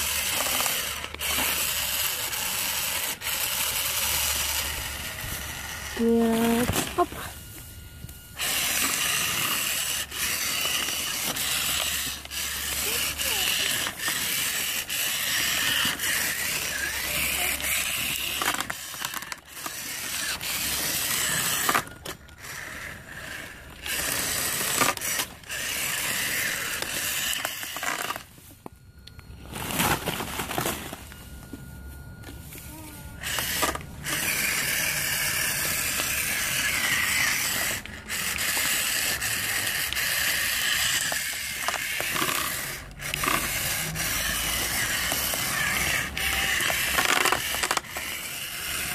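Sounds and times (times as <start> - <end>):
toy truck motor whirring: 0.0 - 31.2, 31.8 - 48.9.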